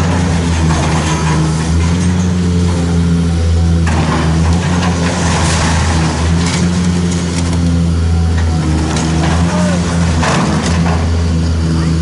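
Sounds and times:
diesel engine running: 0.0s - 12.0s
debris crumbling and clattering: 3.8s - 7.6s.

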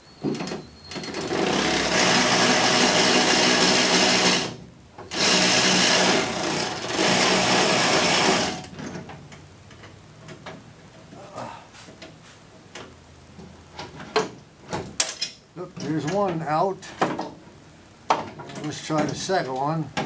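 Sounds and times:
power ratchet whirring: 0.9s - 8.7s.

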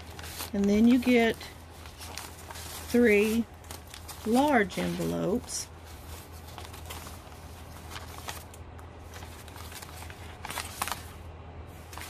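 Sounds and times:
paper envelopes rustling: 0.0s - 12.0s.

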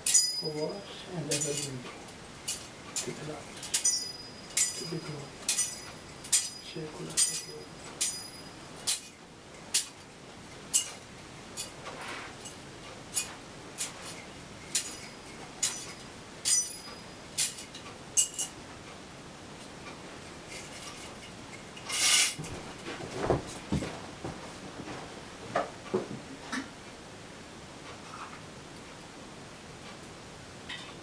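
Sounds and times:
metal vessels clinking: 2.5s - 9.1s, 13.8s - 18.5s
dull knocks: 22.4s - 26.3s.

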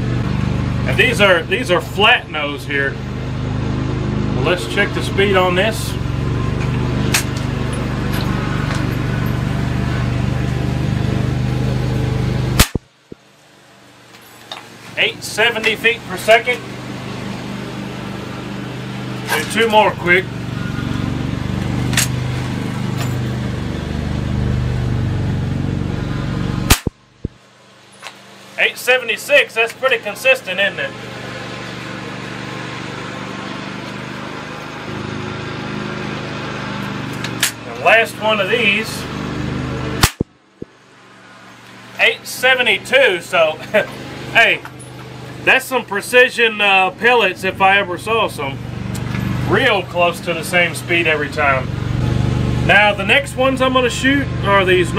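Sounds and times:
engine humming: 0.0s - 54.9s
air rifle shot: 12.6s - 12.9s, 26.7s - 27.0s, 40.0s - 40.3s.

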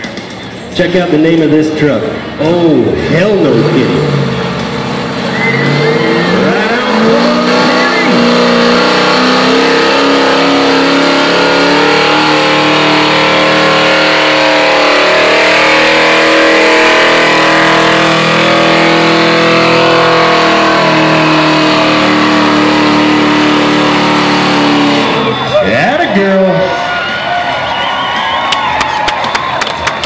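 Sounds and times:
pickup engine at full throttle: 2.2s - 25.6s.

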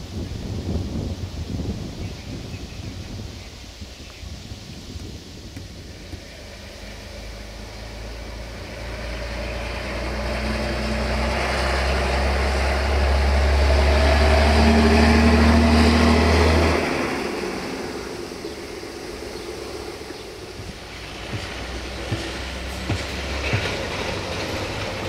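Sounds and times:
diesel engine droning: 5.7s - 25.0s
rushing noise: 12.4s - 25.0s.

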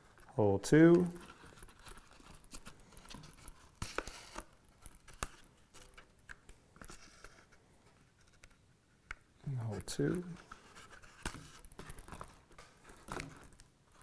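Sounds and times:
small clicks and rustles: 0.0s - 14.0s.

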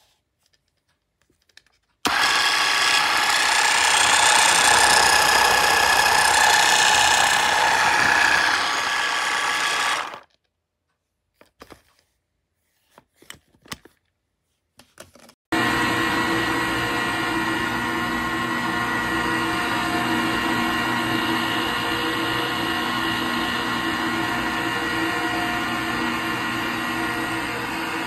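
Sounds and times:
kitchen appliance motor whining: 2.0s - 10.2s, 15.5s - 28.0s.

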